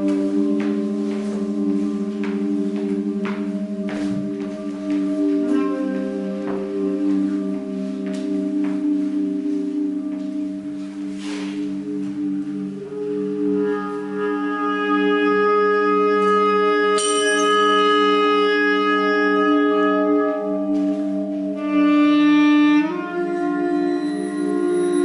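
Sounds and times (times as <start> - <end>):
bass clarinet long notes: 0.0 - 25.0
bright high ring: 17.0 - 18.5, 23.9 - 25.0.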